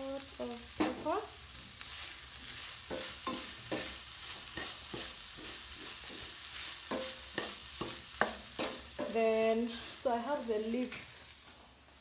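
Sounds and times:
vegetables sizzling in a pan: 0:00.0 - 0:12.0
utensil scraping a pan: 0:02.4 - 0:10.1.

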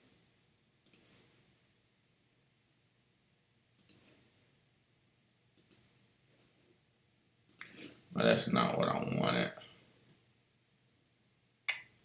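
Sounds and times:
computer mouse clicks: 0:00.8 - 0:01.1, 0:03.8 - 0:04.0, 0:05.6 - 0:05.9, 0:07.5 - 0:07.8.

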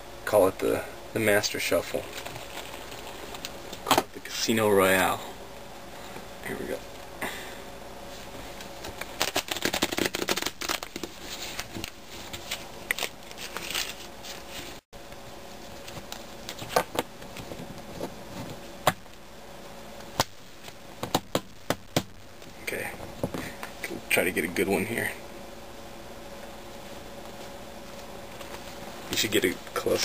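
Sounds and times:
playing cards shuffling: 0:08.6 - 0:14.8.

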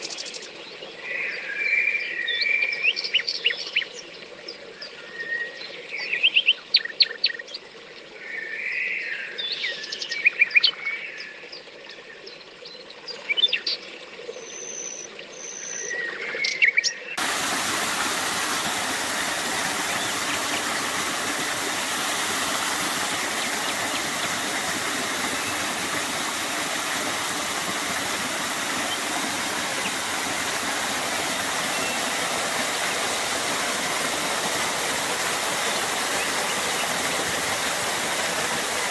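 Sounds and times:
songbirds chirping and trilling: 0:00.0 - 0:38.9
small waterfall splashing: 0:17.2 - 0:38.9.

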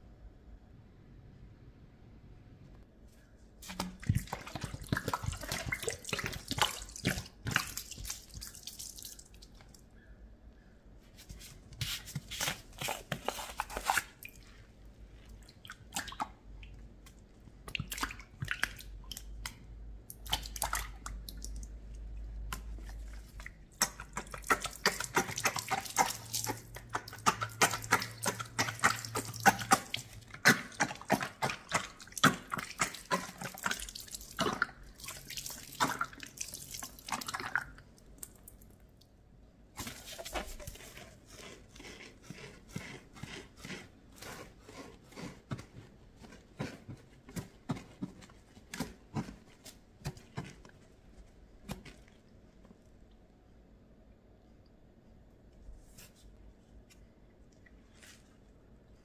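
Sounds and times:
water splashing into sink: 0:03.6 - 0:09.8, 0:23.7 - 0:38.4.

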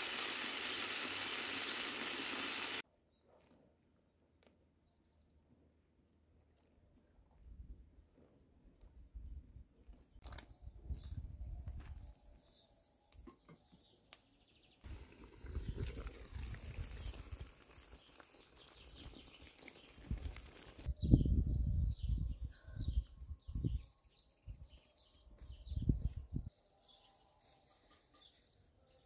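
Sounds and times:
birds chirping: 0:00.0 - 0:02.8, 0:11.9 - 0:20.9
food sizzling in a pan: 0:00.0 - 0:02.8, 0:14.9 - 0:20.9
wind buffeting microphone: 0:14.9 - 0:17.5, 0:20.0 - 0:24.8, 0:25.5 - 0:26.5.

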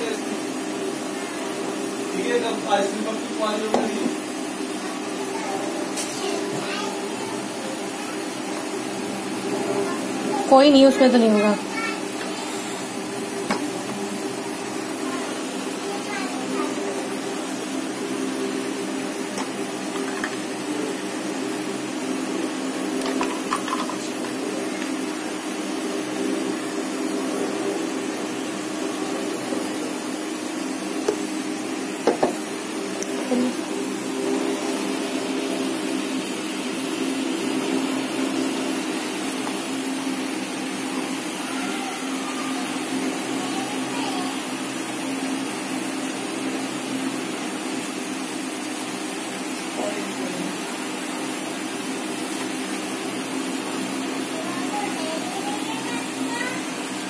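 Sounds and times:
electric fan motor hum: 0:00.0 - 0:57.0.

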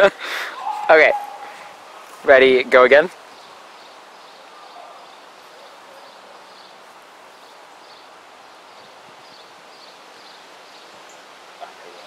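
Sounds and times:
outdoor background noise: 0:00.0 - 0:12.0
footsteps on grass: 0:00.6 - 0:02.8.

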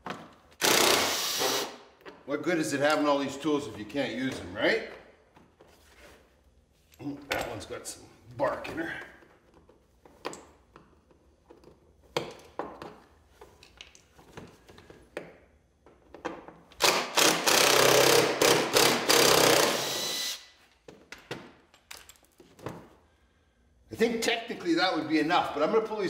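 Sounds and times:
power drill running: 0:00.6 - 0:01.8, 0:16.8 - 0:20.5.

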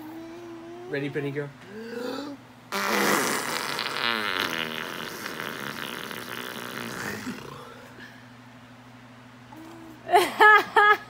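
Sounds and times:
raspberry blown against skin: 0:02.7 - 0:07.5.

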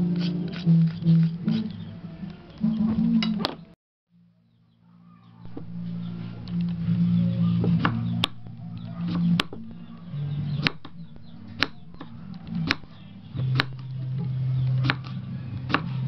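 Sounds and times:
loud low hum: 0:04.2 - 0:16.0
knife slicing gourd: 0:10.4 - 0:13.9, 0:14.8 - 0:16.0.

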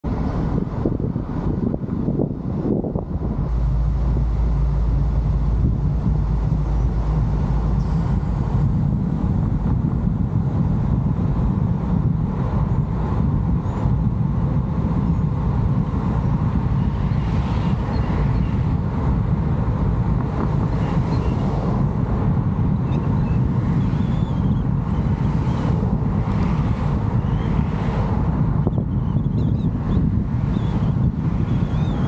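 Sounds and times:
vehicle road noise: 0:00.0 - 0:32.0
wind buffeting microphone: 0:00.0 - 0:32.0.

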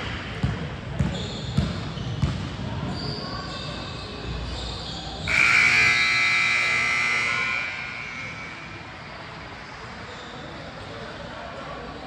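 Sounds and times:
scoreboard buzzer horn: 0:05.3 - 0:08.6.

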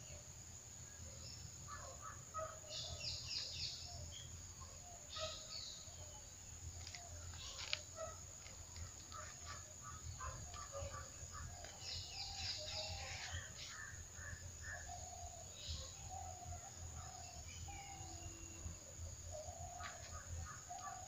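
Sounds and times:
steady high-pitched hiss: 0:00.0 - 0:21.0
bird chirps: 0:01.2 - 0:08.2, 0:08.8 - 0:21.0.

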